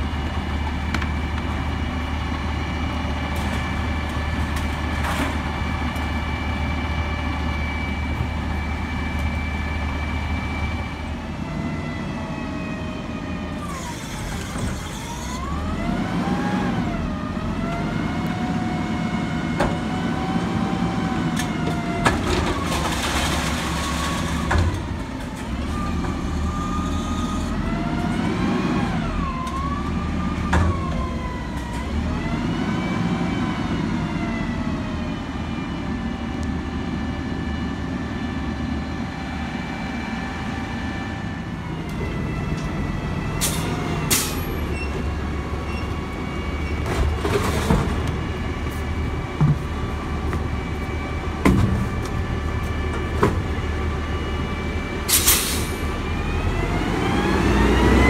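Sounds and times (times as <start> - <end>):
truck diesel engine revving: 15.4 - 21.3, 55.5 - 58.0.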